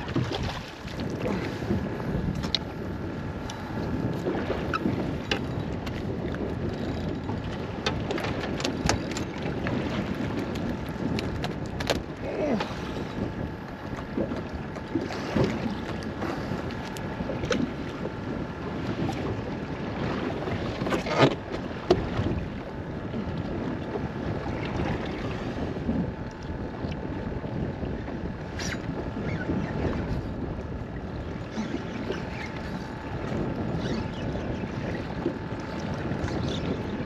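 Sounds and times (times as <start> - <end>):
water slapping against boat hull: 0.0 - 2.8, 3.4 - 22.6
wind buffeting microphone: 0.0 - 37.0.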